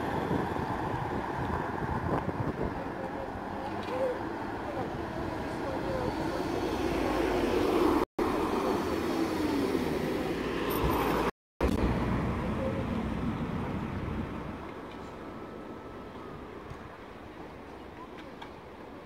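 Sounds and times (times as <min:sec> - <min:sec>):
tram rumbling with gliding tones: 0:00.0 - 0:19.0.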